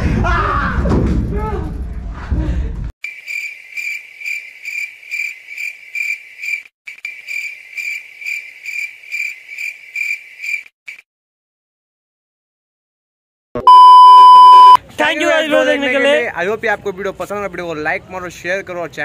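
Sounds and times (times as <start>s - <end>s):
cricket-like chirping: 3.0s - 10.7s.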